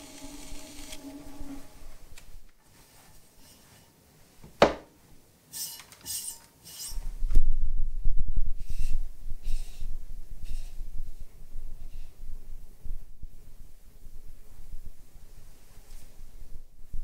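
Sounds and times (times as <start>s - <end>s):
brushing scrapes: 0.0s - 4.0s, 5.6s - 7.2s.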